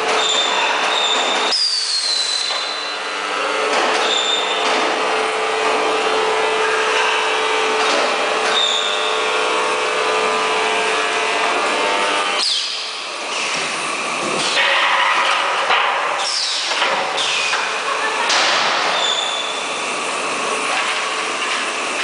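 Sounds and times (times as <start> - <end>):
seam welding machine humming: 2.2 - 22.0
high squeals: 18.9 - 19.6.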